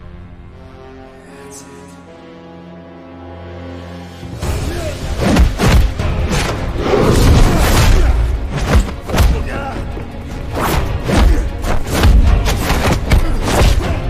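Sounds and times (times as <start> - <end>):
punch and kick impacts: 5.2 - 6.6.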